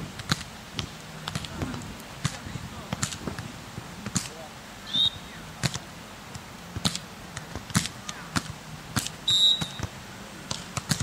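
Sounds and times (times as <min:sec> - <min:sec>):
sharp slaps or claps: 0:04.0 - 0:04.4, 0:10.5 - 0:11.0
referee's whistle blast: 0:04.9 - 0:05.4, 0:09.2 - 0:09.9.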